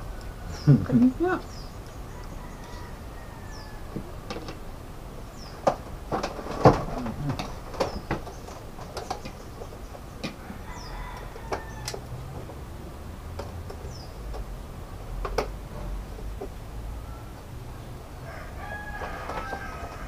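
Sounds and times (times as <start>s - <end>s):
rooster crowing faintly: 2.0s - 4.2s, 10.3s - 12.2s, 16.8s - 20.0s.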